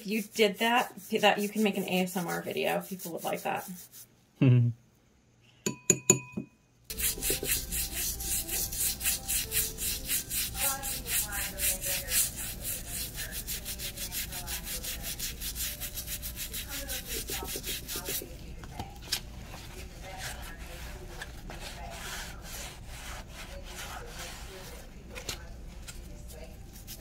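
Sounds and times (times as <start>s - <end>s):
toothbrush scrubbing fast: 0.0s - 4.0s, 6.9s - 18.4s, 20.0s - 24.9s, 26.3s - 27.0s.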